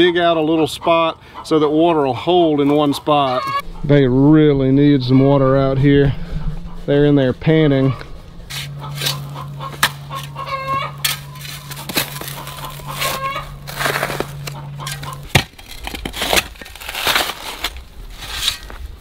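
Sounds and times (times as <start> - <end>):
chickens clucking: 0.0 - 15.3
shovel chopping into hard soil: 11.0 - 18.7.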